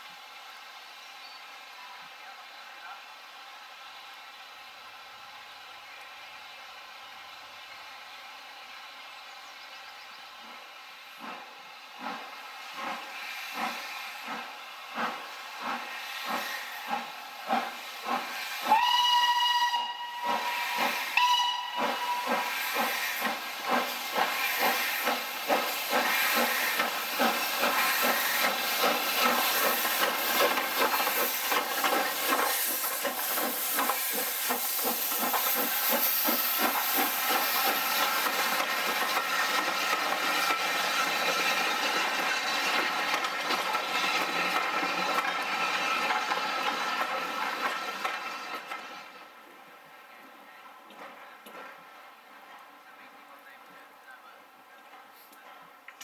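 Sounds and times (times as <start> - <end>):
steam hiss: 10.3 - 50.0
steam locomotive exhaust chuffs: 10.4 - 49.5
steam locomotive whistle: 18.6 - 23.2.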